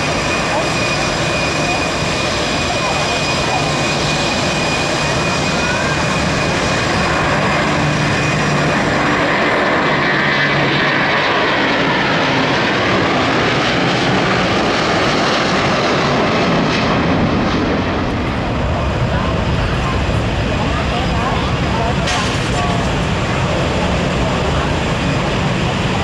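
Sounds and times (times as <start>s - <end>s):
jet engines at takeoff: 0.0s - 26.0s.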